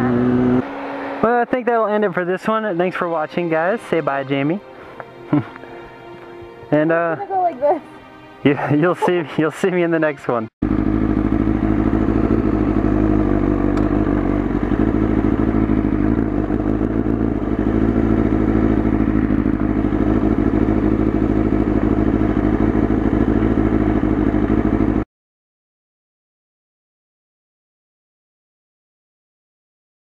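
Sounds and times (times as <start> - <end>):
motorcycle engine idling: 10.6 - 25.0.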